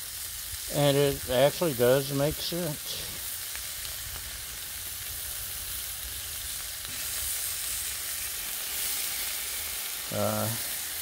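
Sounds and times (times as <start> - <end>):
steaks sizzling on a griddle: 0.0 - 11.0.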